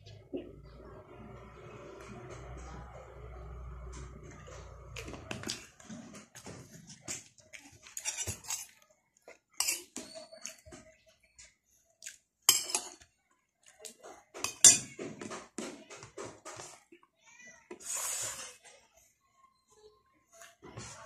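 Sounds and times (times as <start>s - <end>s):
cutlery clinking on a plate: 7.9s - 8.7s, 9.6s - 10.8s, 12.5s - 13.0s, 14.4s - 15.3s.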